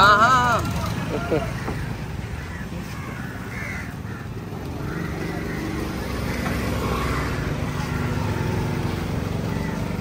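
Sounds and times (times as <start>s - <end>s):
crows cawing: 1.2s - 10.0s.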